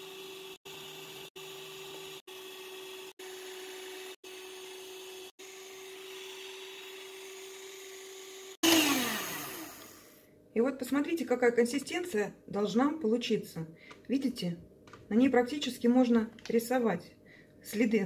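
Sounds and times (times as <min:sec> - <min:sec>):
electric hand mixer whining: 0:00.0 - 0:10.2.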